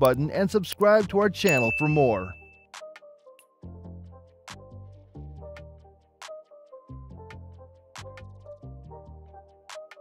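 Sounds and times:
short melodic notes: 0:01.5 - 0:02.4.

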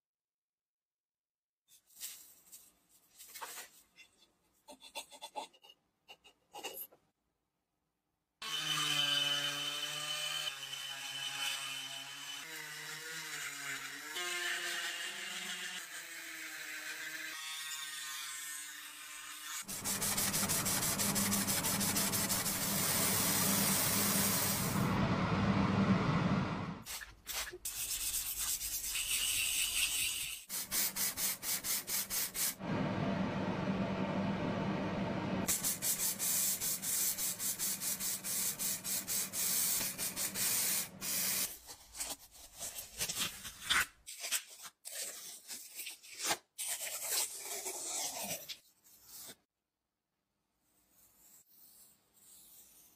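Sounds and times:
sanding metal by hand: 0:19.3 - 0:24.7, 0:26.9 - 0:32.6, 0:35.5 - 0:41.5.

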